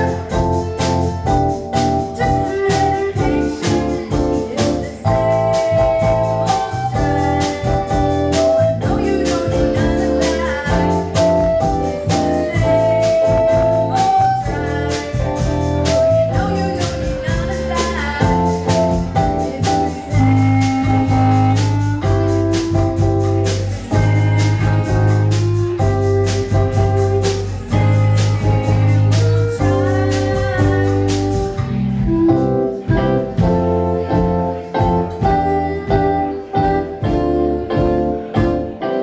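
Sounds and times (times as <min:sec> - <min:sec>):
electric bass: 0:00.0 - 0:39.0
keyboard chords: 0:00.0 - 0:39.0.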